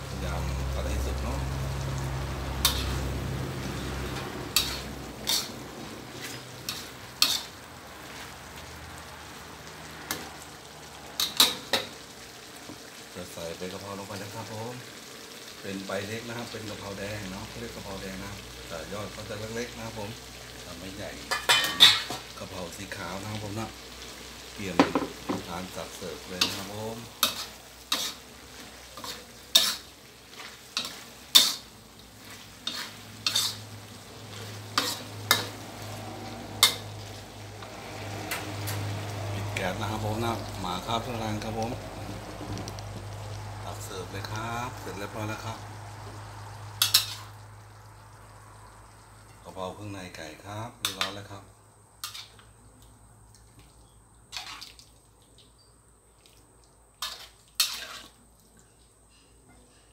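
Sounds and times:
frying sizzle: 0.0s - 59.9s
metal spatula scraping a wok: 2.6s - 8.5s, 26.2s - 38.9s, 46.7s - 47.4s, 52.0s - 52.4s, 57.0s - 58.2s.

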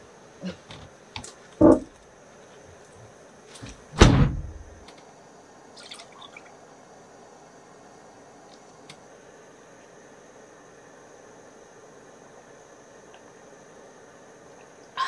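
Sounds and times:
van door shutting: 4.0s - 4.7s.

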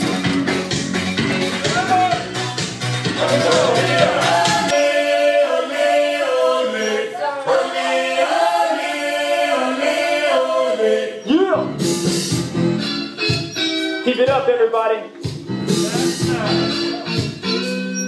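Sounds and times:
pop music beat and bass: 0.0s - 4.9s, 11.5s - 14.6s, 15.2s - 18.0s
group singing in harmony: 2.9s - 11.4s.

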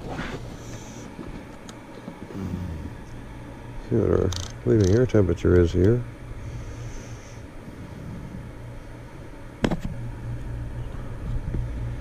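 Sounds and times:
air handler humming: 0.0s - 12.0s.

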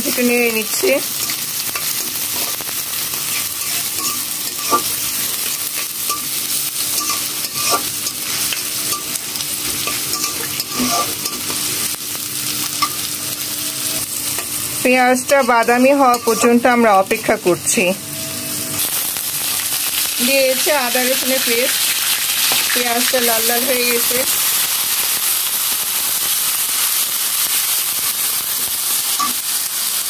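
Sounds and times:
onions sizzling in oil: 0.0s - 30.0s
metal spatula scraping pan: 1.2s - 6.3s, 6.9s - 11.7s, 15.3s - 17.0s.

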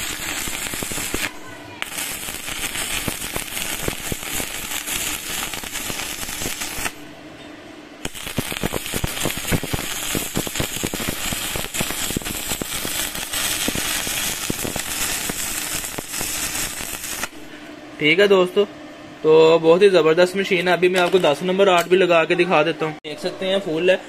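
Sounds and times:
welding arc crackling: 0.0s - 7.2s, 8.0s - 17.6s.

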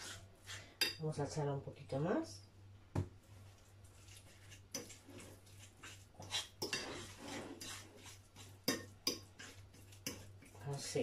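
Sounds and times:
fork scraping and clinking in bowl: 4.0s - 10.6s.

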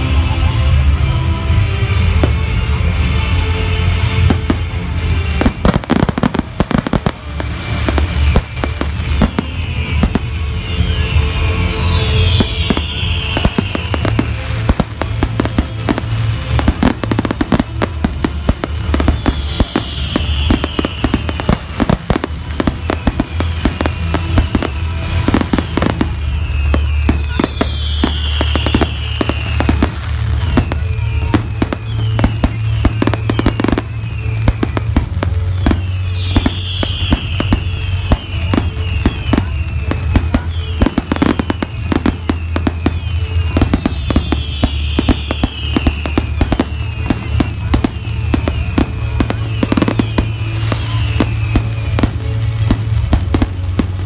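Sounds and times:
fireworks bangs and crackling: 0.0s - 54.0s.

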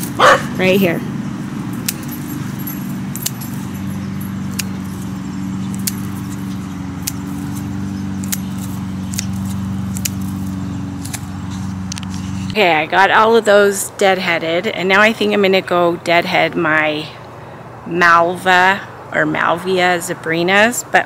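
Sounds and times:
low mechanical hum: 0.0s - 21.0s
scissors snipping: 1.8s - 2.5s, 3.1s - 12.6s.

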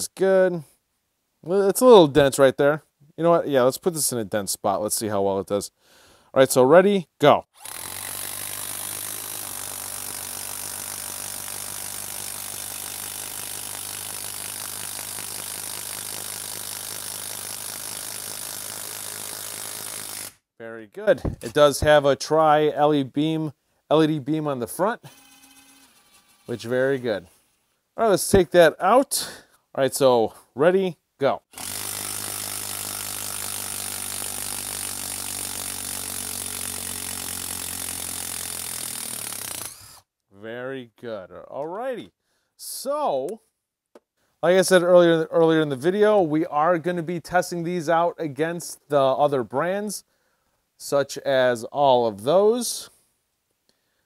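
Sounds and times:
impact driver hammering screw: 7.6s - 20.4s, 25.0s - 26.7s, 31.5s - 40.0s.

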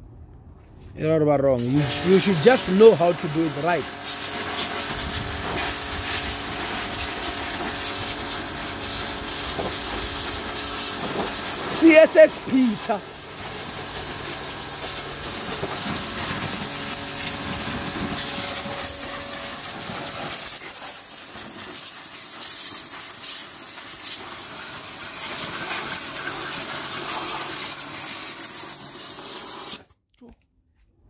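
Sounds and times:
pressure washer jet hissing: 1.6s - 29.8s
pump humming faintly: 1.8s - 22.2s.

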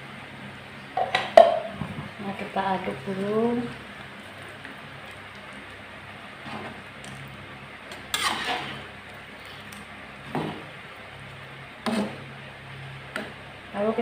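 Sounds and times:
metal spatula stirring thick curry: 8.1s - 8.8s.

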